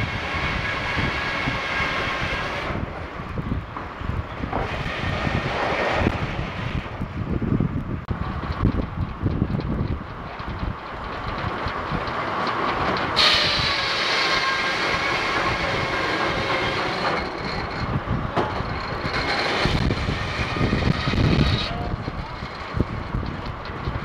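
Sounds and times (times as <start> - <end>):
sawmill rumble: 0.0 - 24.0
circular saw whine: 13.2 - 23.1.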